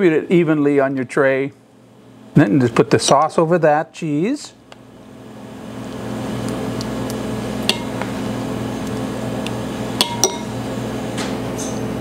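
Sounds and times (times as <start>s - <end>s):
machine hum: 1.6s - 12.0s.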